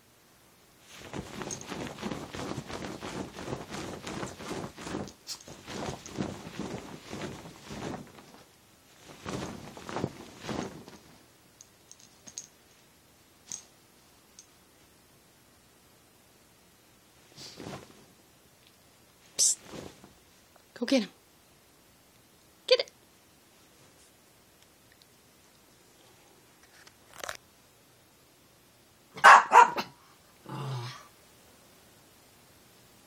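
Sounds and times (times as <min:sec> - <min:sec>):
bedding rustling: 0:00.8 - 0:13.7, 0:17.1 - 0:18.2, 0:19.0 - 0:20.9
dog pouncing on bed thumps: 0:01.0 - 0:08.4.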